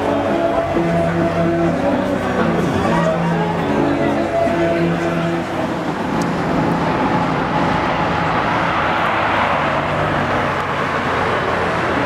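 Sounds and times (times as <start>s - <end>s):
rush of noise: 0.0s - 12.0s
car engine driving past: 5.9s - 12.0s.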